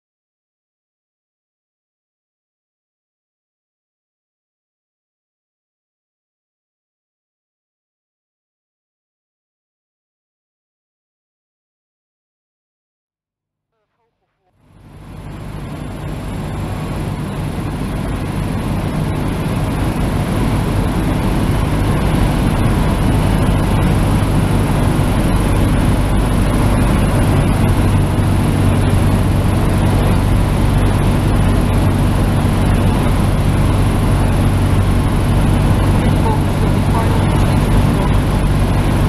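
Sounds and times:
plane engine droning: 0:13.9 - 0:39.0
rushing airflow: 0:14.9 - 0:39.0.

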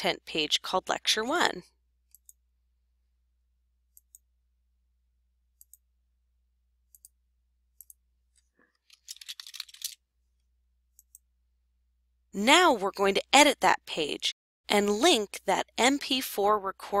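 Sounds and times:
computer mouse clicks: 0:02.1 - 0:02.4, 0:03.9 - 0:04.3, 0:05.6 - 0:05.8, 0:06.9 - 0:07.2, 0:07.8 - 0:08.0, 0:11.0 - 0:11.2
keyboard typing: 0:08.8 - 0:10.0.

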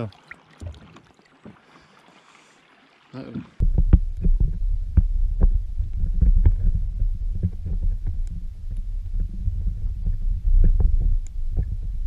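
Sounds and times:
underwater rumble: 0:03.4 - 0:12.0.

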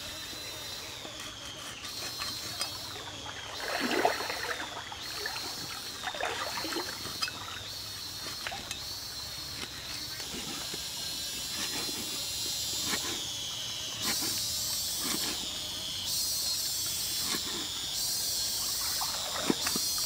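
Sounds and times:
cleaver scraping fish skin: 0:01.0 - 0:02.9, 0:09.4 - 0:13.3, 0:14.0 - 0:15.6.

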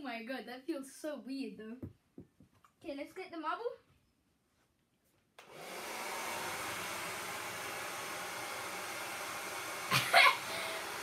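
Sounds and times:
hair dryer blowing: 0:05.4 - 0:11.0.

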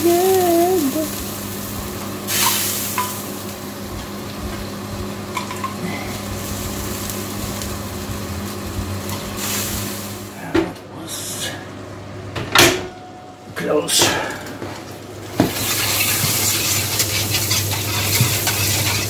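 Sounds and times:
roast sizzling in pan: 0:00.0 - 0:10.5, 0:14.6 - 0:19.0
low constant hum: 0:00.0 - 0:19.0.

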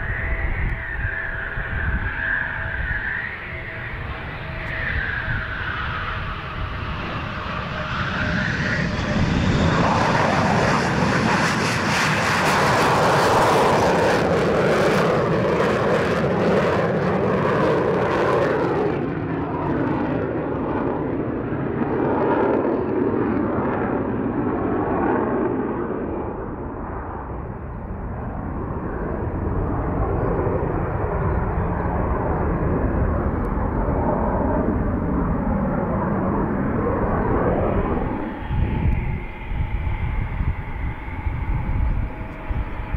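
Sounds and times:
loud jet engine noise with crackling: 0:00.0 - 0:42.9
steady low rumble: 0:25.4 - 0:42.9.

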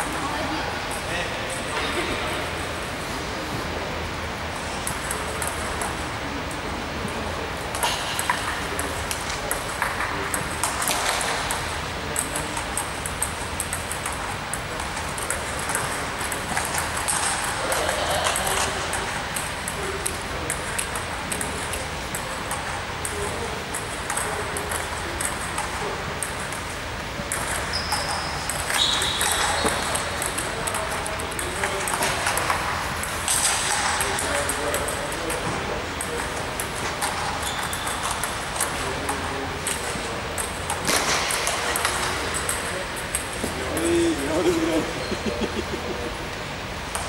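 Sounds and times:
sports hall murmur: 0:00.0 - 0:47.0
table tennis ball ticking: 0:07.7 - 0:44.3.

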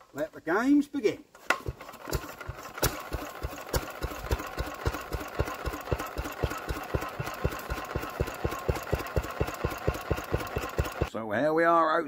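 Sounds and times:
stationary engine running: 0:02.0 - 0:11.1.

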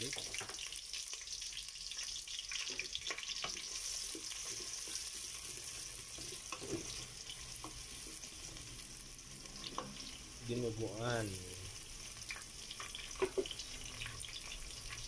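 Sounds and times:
onion sizzling in hot oil: 0:00.0 - 0:15.0
spatula scraping a pot: 0:02.5 - 0:08.6.

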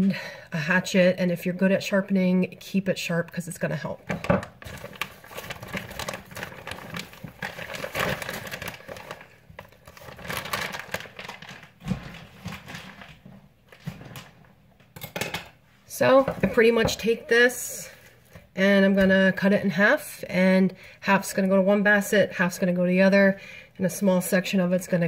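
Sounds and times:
plastic bag crinkling: 0:04.1 - 0:14.5.

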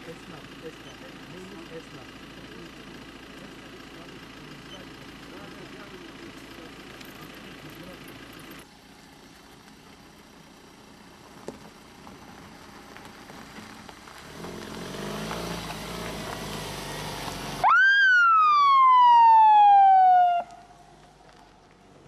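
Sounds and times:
ambulance engine: 0:15.0 - 0:21.7
siren wail: 0:17.6 - 0:20.8.

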